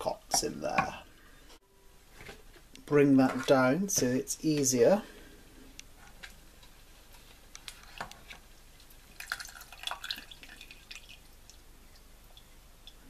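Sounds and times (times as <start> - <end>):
faint wet drips: 8.8 - 13.0.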